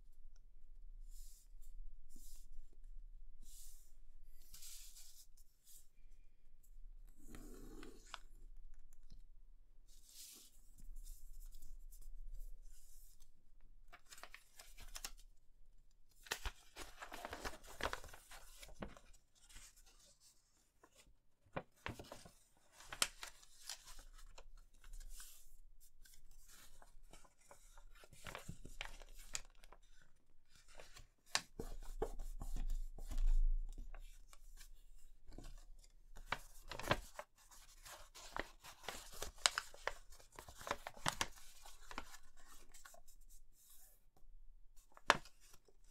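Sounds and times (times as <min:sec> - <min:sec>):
paper rustling and crinkling: 0:13.9 - 0:15.2, 0:16.2 - 0:43.9, 0:44.8 - 0:45.9
paper folds snapping: 0:37.8 - 0:42.2.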